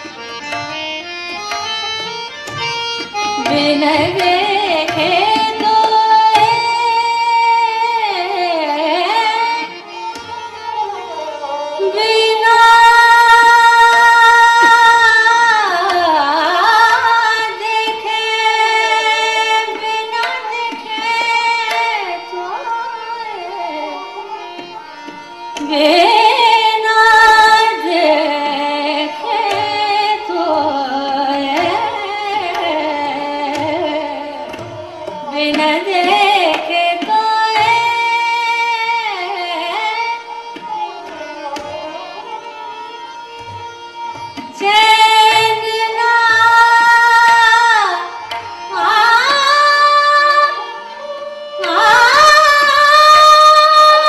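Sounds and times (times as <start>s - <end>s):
harmonium: 0.0s - 54.0s
tabla strokes: 0.0s - 54.0s
tanpura drone: 0.0s - 54.0s
woman singing classical vocals: 11.8s - 22.1s, 25.6s - 34.5s, 35.2s - 40.1s, 44.6s - 48.1s, 48.7s - 50.7s, 51.6s - 54.0s.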